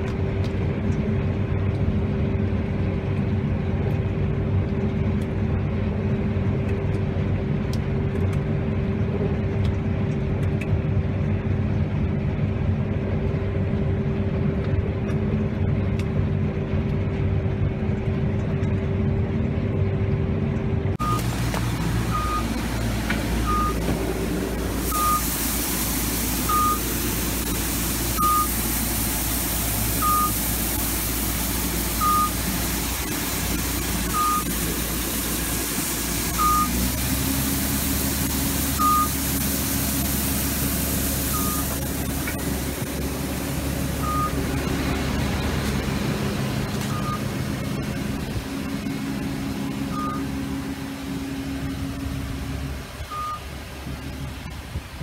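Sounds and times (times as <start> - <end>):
combine harvester engine hum: 0.0 - 55.0
electronic warning beep: 21.0 - 21.3, 22.1 - 22.6, 23.4 - 23.8, 24.9 - 25.3, 26.4 - 28.6, 30.0 - 30.4, 31.9 - 32.4, 34.0 - 34.5, 36.3 - 36.8, 38.7 - 39.2, 41.3 - 41.8, 44.0 - 44.4, 46.9 - 47.3, 49.9 - 50.3, 53.1 - 53.5
hiss of falling seed: 24.0 - 43.8.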